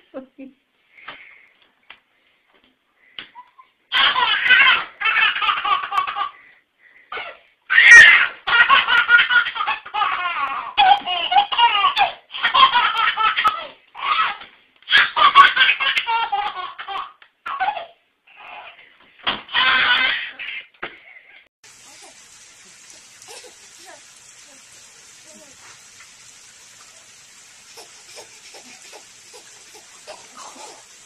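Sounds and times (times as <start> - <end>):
baby laughing: 3.3 - 6.4, 7.1 - 18.8, 19.5 - 22.2, 22.8 - 24.7, 27.6 - 31.0.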